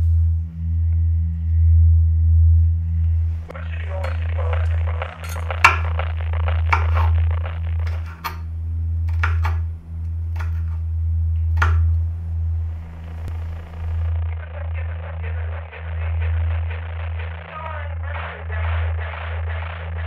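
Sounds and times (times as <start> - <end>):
low steady drone: 0.0 - 20.0.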